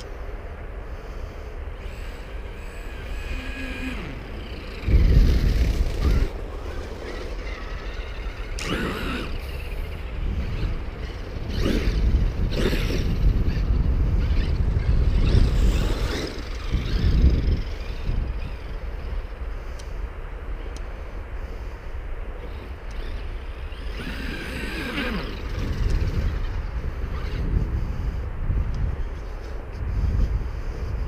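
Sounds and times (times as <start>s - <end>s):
wind rumble on microphone: 0.0s - 31.0s
rc truck motor whining: 1.8s - 19.4s, 22.4s - 27.5s.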